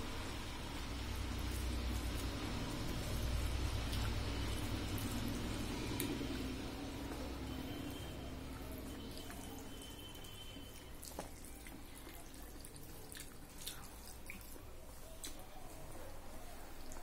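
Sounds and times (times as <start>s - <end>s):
wet mouth eating sounds: 10.9s - 15.5s.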